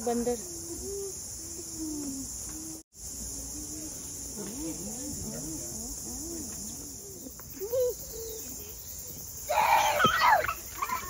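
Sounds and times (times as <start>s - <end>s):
child squealing: 9.5s - 11.0s.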